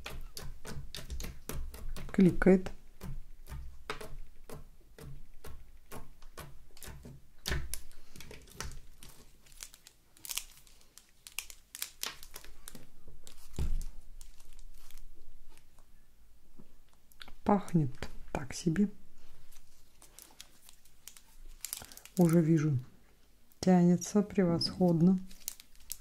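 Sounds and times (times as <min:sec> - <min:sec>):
slime clicking and popping: 0:00.0 - 0:10.6.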